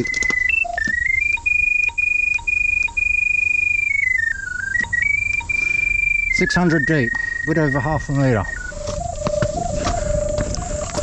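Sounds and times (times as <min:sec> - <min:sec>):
locator beeping high tone: 0:00.0 - 0:11.0.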